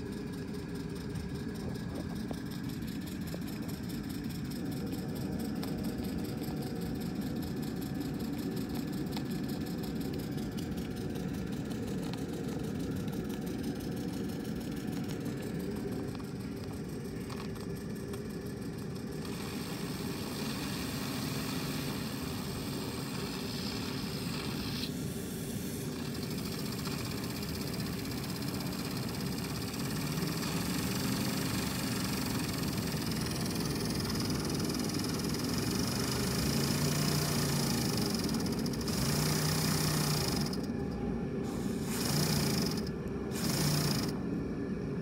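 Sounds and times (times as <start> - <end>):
model steam engine running: 0.0 - 44.4
steam hiss: 18.9 - 40.6, 41.4 - 44.2.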